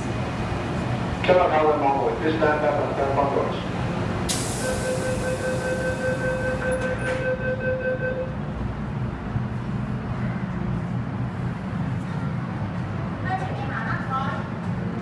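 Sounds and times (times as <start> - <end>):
train rumbling: 0.0 - 15.0
hiss: 4.3 - 5.3
train doors clicking shut: 4.3 - 7.4
door-closing warning beeps: 4.4 - 8.4.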